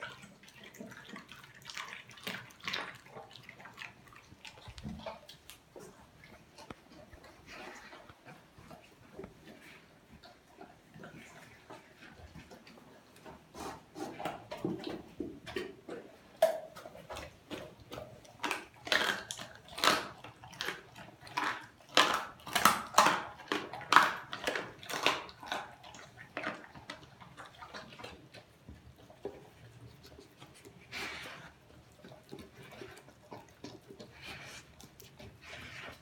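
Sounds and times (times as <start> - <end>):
dog chomping food: 14.2 - 35.7.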